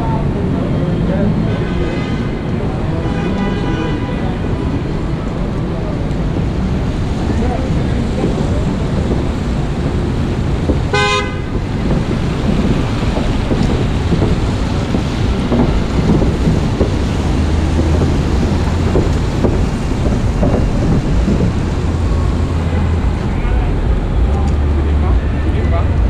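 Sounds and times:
city traffic noise: 0.0s - 26.0s
vehicle horn toot: 1.5s - 4.4s, 10.9s - 11.6s.

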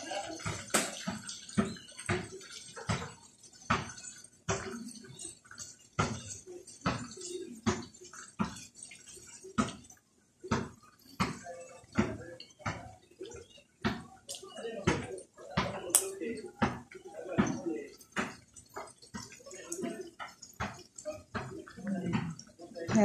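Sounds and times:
sausage sizzling in oil: 0.0s - 23.0s.

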